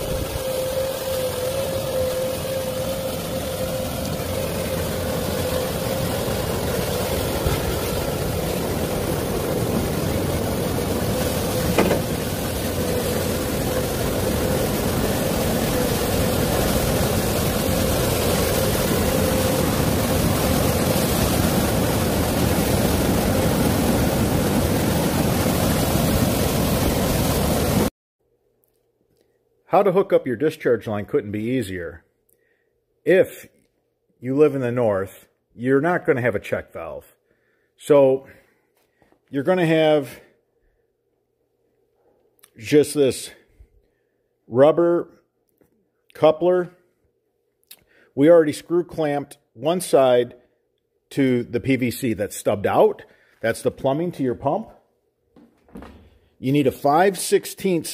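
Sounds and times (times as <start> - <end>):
excavator diesel engine running: 0.0 - 26.8.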